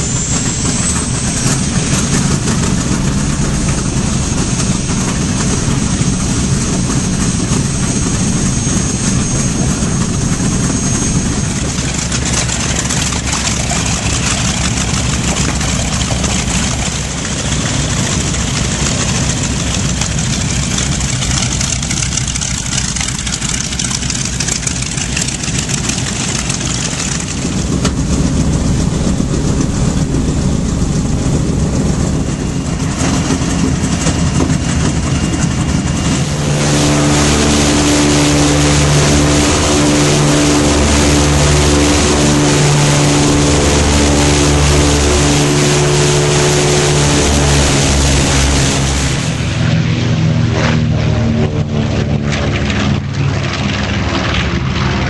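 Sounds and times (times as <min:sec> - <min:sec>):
aircraft radial engines droning: 0:00.0 - 0:55.0.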